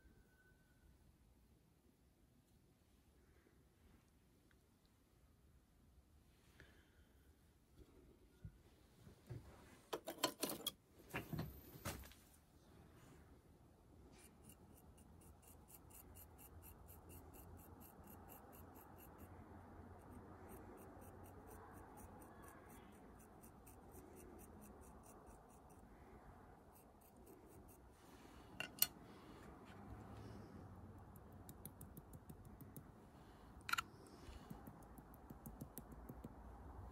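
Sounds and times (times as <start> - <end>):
tool scratching clay: 14.2 - 19.3, 19.9 - 25.9.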